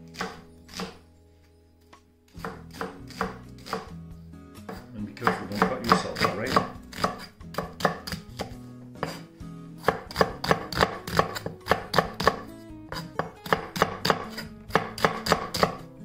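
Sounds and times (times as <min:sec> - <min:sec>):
knife chopping on wooden board: 0:00.1 - 0:01.0, 0:02.4 - 0:04.0, 0:04.6 - 0:15.9.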